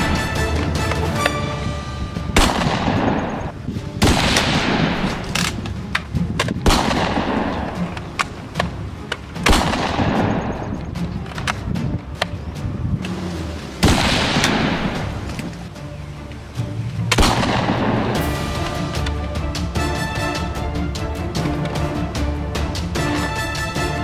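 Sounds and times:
loud echoing gunshots: 0:01.4 - 0:05.5, 0:06.6 - 0:08.4, 0:09.4 - 0:10.8, 0:13.8 - 0:15.3, 0:17.1 - 0:20.5.

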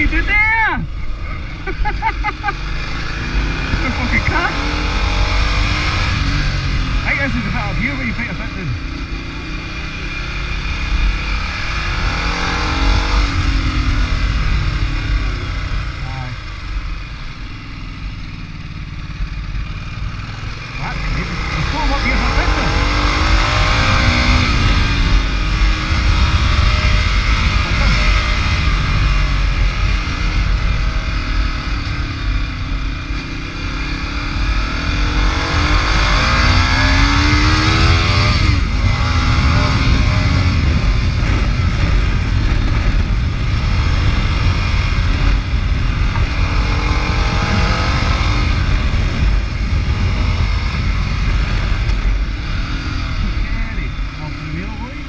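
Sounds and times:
motorcycle engine revving: 0:00.0 - 0:55.0
wind noise on microphone: 0:21.6 - 0:54.7.

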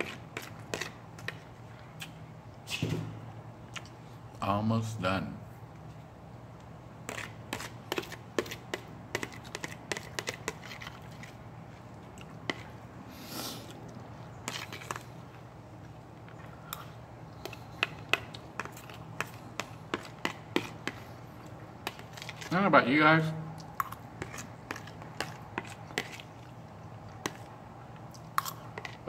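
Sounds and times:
steady low hum: 0:00.0 - 0:29.0
spoon scraping plastic plate: 0:21.9 - 0:22.6.

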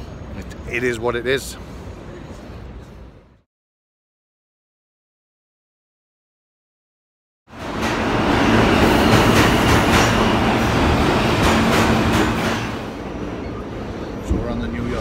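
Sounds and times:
subway train rumbling: 0:00.0 - 0:03.4, 0:07.5 - 0:15.0
wheels clacking over rails: 0:07.6 - 0:13.0.

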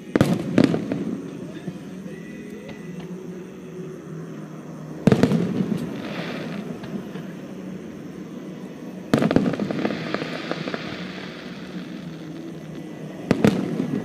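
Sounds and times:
fireworks booming: 0:00.0 - 0:03.3, 0:04.9 - 0:14.0
rumbling echo and crackling: 0:05.0 - 0:14.0.

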